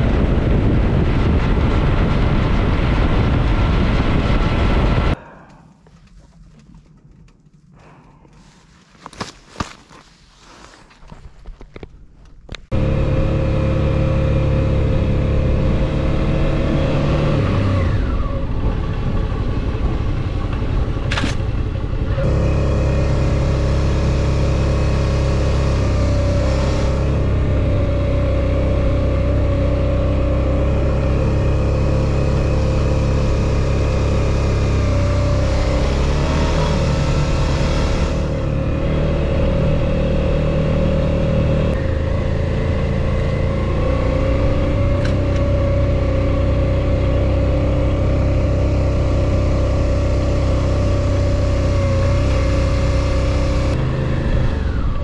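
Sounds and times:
motorcycle engine running: 0.0s - 5.2s, 12.7s - 55.0s.

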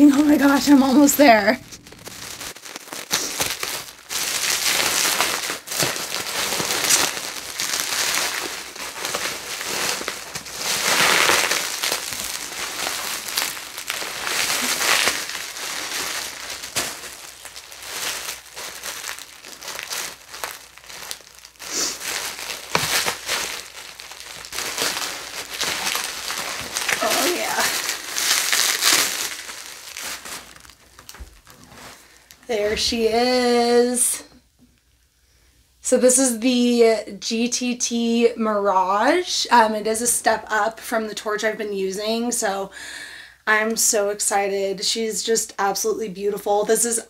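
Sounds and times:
bubble wrap crinkling: 0.0s - 34.1s.

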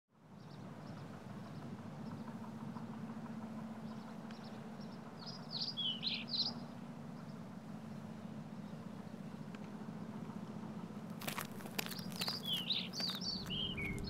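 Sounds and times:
low ambient hum: 0.2s - 14.0s
bird chirping: 3.9s - 7.3s, 11.5s - 14.0s.

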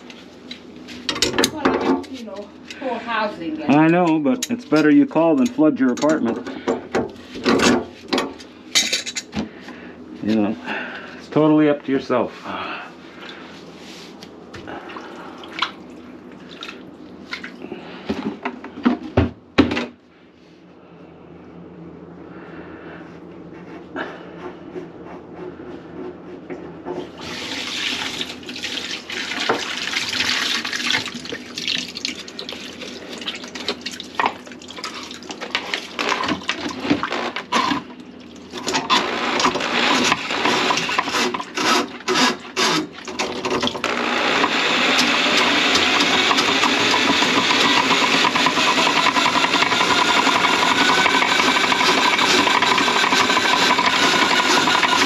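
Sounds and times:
water running into sink: 27.2s - 35.6s.

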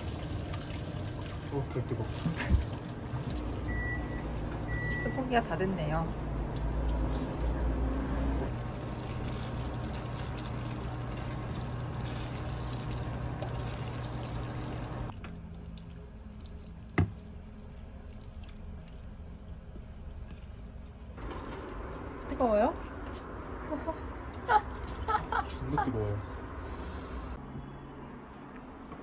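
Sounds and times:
wet squishing: 9.0s - 23.3s.

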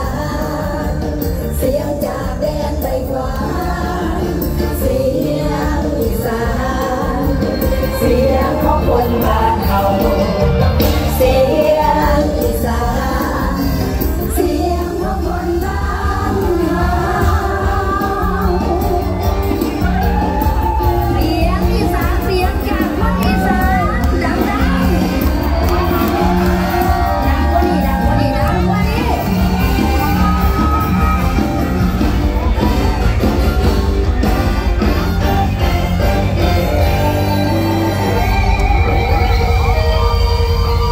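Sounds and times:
people singing: 0.0s - 32.7s
live band music: 0.0s - 40.9s.

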